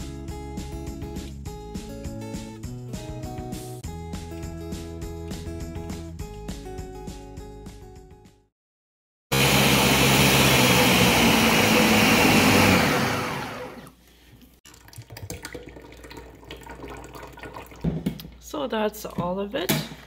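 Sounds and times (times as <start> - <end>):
blender running: 9.3 - 14.0
thick soup being poured: 14.7 - 17.8.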